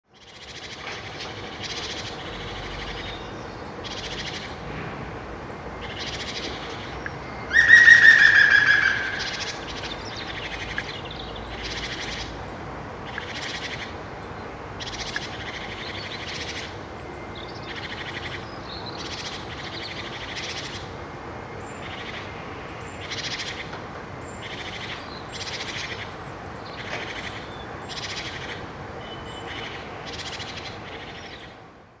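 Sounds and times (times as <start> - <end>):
birds chirping faintly: 5.5 - 32.0
woodpecker laughing call: 7.5 - 9.9.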